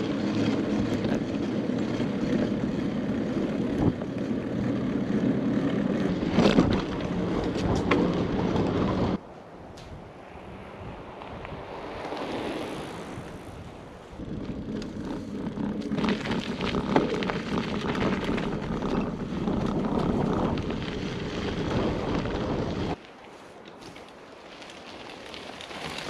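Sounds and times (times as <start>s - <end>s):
wind noise on microphone: 0.0s - 4.2s, 6.1s - 23.0s
bike clattering: 0.0s - 9.2s, 14.4s - 23.0s, 23.6s - 26.0s
bike tyres rolling on dirt: 0.0s - 9.2s, 9.9s - 26.0s.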